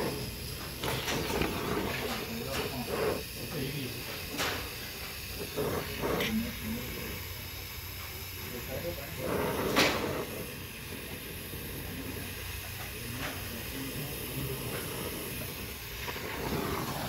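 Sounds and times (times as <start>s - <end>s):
torch flame hissing: 0.0s - 17.0s
wet rag boiling off steam: 0.0s - 17.0s.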